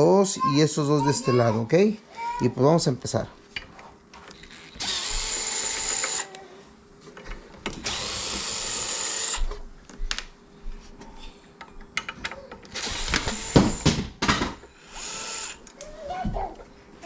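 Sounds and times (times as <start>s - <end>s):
cordless screwdriver whining: 4.4s - 6.4s, 7.8s - 9.5s, 12.7s - 13.8s, 14.8s - 15.7s.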